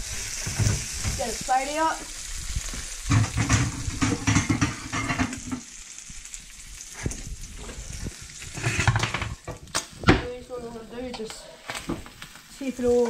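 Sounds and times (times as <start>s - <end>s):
food sizzling in a frying pan: 0.0s - 13.0s
spatula scraping a pan: 3.1s - 5.7s, 7.7s - 9.4s.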